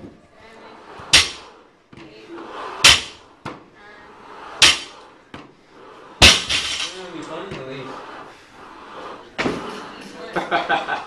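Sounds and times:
barbell plates hitting rubber floor: 1.1 - 1.5, 2.8 - 3.2, 4.6 - 5.0, 6.2 - 7.0.

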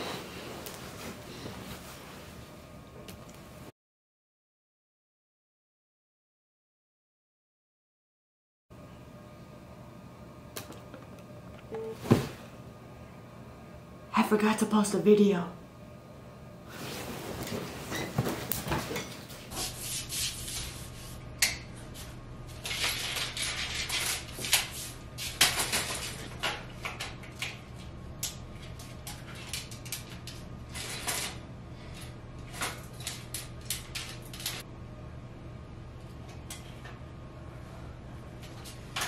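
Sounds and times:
bedding rustling: 0.0 - 2.8, 11.9 - 12.6, 16.7 - 19.5
steady low hum: 0.0 - 3.7, 8.8 - 39.0.

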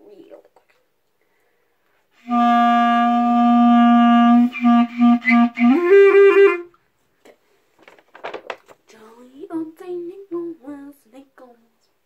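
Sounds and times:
clarinet playing notes: 2.2 - 6.8.

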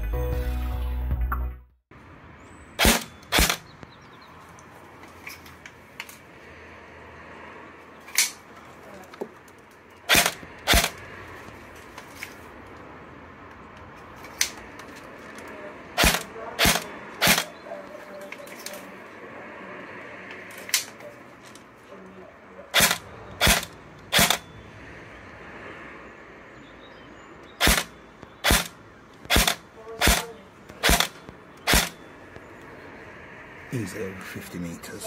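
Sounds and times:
airsoft rifle shots cracking: 2.8 - 3.7, 10.1 - 11.0, 16.0 - 17.6, 22.7 - 24.4, 27.6 - 32.0.

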